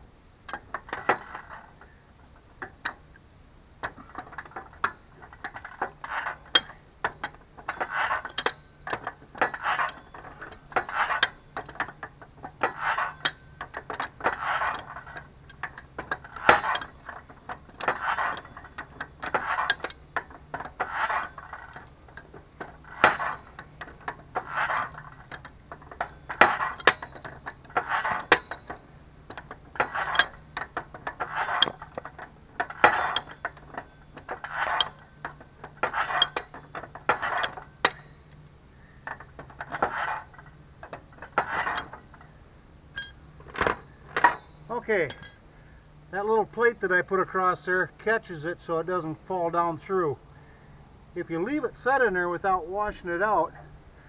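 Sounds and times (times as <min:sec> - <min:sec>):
metal tools clinking and scraping: 0:03.8 - 0:45.4.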